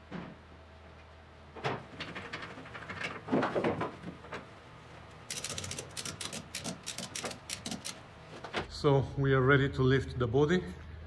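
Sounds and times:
ratchet clicking: 5.3s - 8.0s.

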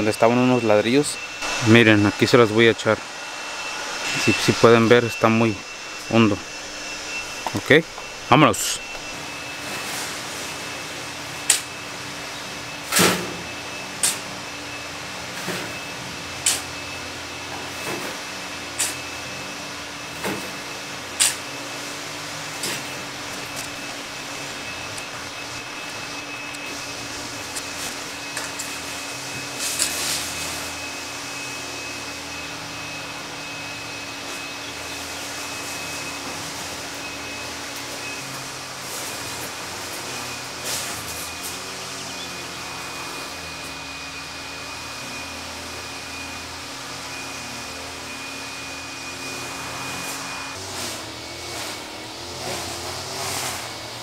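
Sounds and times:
steady machine hum: 0.0s - 54.0s
shovel scraping soil: 18.8s - 19.0s, 29.4s - 30.5s, 50.6s - 53.7s.

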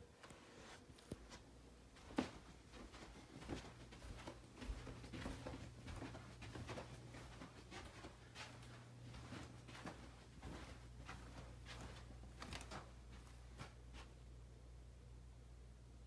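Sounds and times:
low steady hum: 0.0s - 16.0s
footsteps on carpet: 0.3s - 14.2s
handheld camera rustle: 6.2s - 14.1s.

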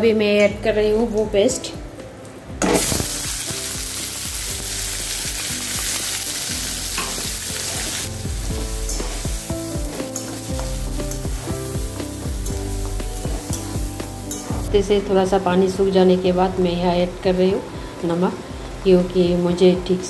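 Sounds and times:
paste sizzling in hot oil: 2.7s - 14.7s.

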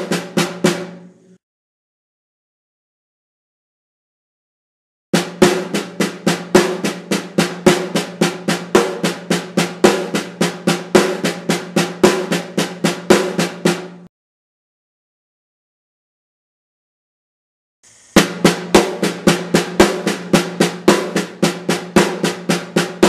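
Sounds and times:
snare drum strokes: 0.0s - 1.4s, 5.2s - 14.1s, 17.8s - 23.0s.

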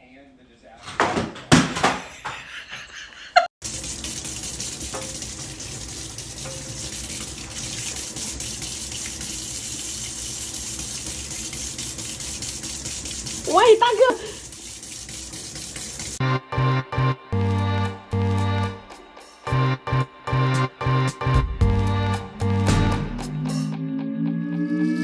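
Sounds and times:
tap water splashing into sink: 3.6s - 16.2s.

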